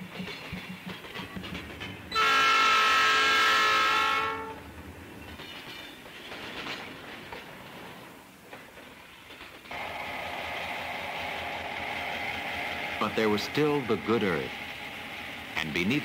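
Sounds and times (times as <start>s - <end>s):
train wheels clacking on rails: 0.0s - 16.0s
train horn blast: 2.1s - 4.6s.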